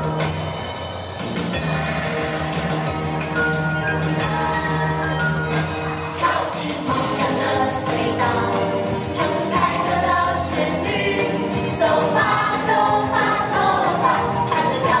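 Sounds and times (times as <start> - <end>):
live band playing: 0.0 - 15.0
chorus singing children's song: 4.0 - 15.0.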